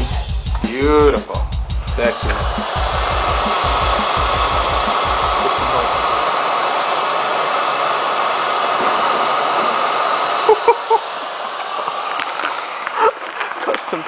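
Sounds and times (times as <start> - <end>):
electric blower rushing air: 0.0 - 14.0.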